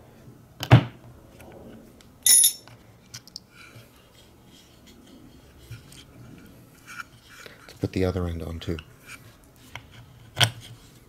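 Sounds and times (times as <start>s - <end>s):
metallic clink: 2.2s - 2.7s.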